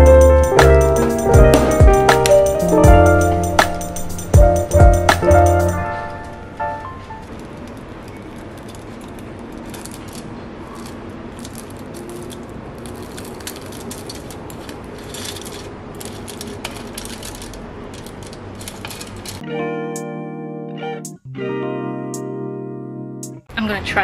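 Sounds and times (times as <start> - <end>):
crisp pastry crackling: 7.3 - 19.4
foil crinkling: 7.3 - 19.4
cutlery clicking on foil: 7.7 - 19.4.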